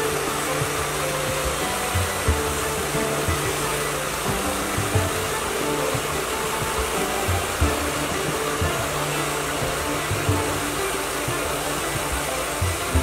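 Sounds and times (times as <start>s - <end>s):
sawmill whirring: 0.0s - 13.0s.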